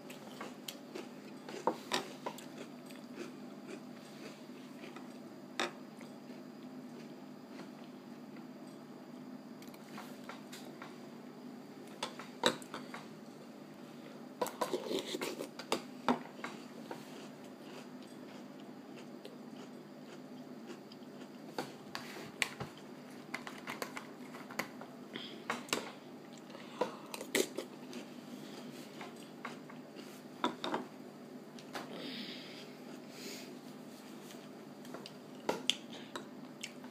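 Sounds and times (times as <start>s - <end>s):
cereal crunching being chewed: 0.1s - 5.2s, 17.0s - 21.5s.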